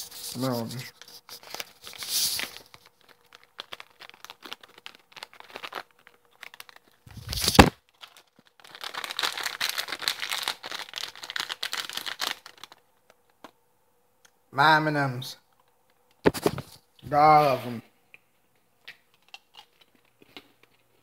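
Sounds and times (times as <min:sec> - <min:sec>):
plastic snack bag crinkling: 0:00.1 - 0:13.5.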